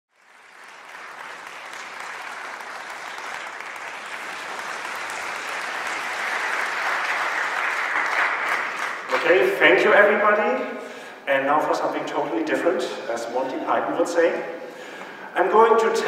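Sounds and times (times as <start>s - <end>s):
audience applauding: 0.1s - 9.6s.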